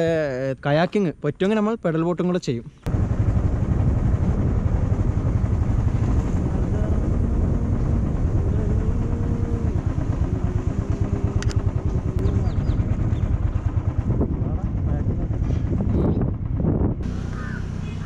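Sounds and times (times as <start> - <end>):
wind on microphone: 2.9 - 17.2
motorcycle engine: 2.9 - 18.0.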